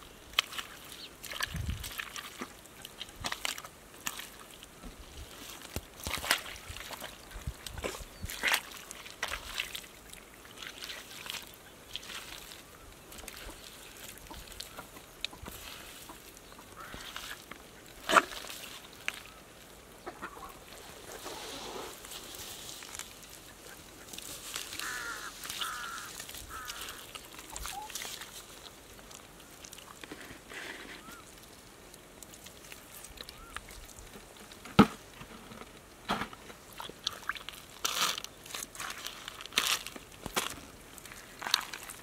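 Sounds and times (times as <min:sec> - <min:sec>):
hands squelching through wet mud: 0:00.0 - 0:35.2, 0:36.5 - 0:42.0.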